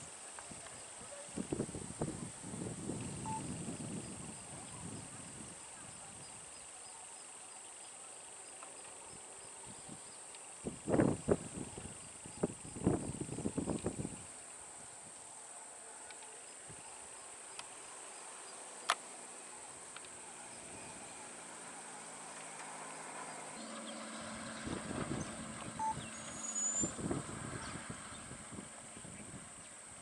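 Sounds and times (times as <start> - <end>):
steady high hiss: 0.0 - 23.9.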